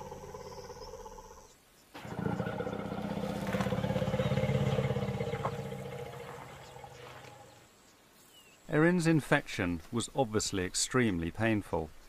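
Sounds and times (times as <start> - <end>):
elephants rumbling: 2.0 - 7.6.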